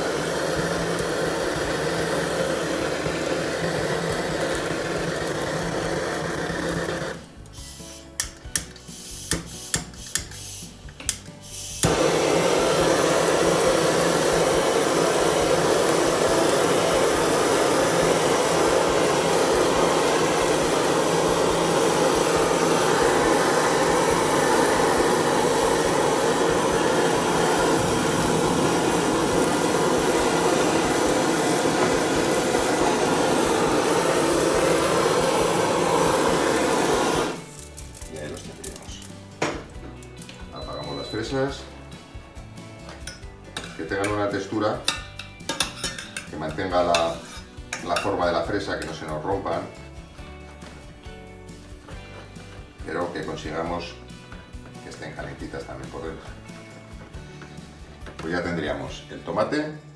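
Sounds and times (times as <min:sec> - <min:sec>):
blowtorch flame hissing: 0:00.0 - 0:39.4.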